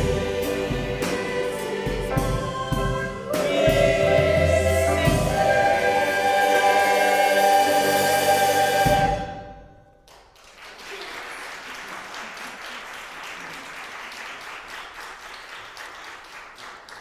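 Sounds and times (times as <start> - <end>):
choir and piano chord: 0.0 - 9.7
audience applause: 10.0 - 17.0.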